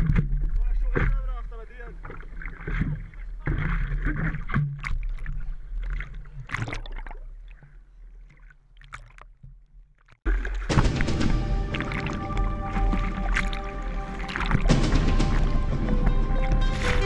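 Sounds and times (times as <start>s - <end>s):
sharp splashes: 0.0s - 9.5s, 10.2s - 17.0s
water splashing and sloshing: 0.0s - 17.0s
steady low rumble: 10.4s - 17.0s
music: 10.6s - 17.0s.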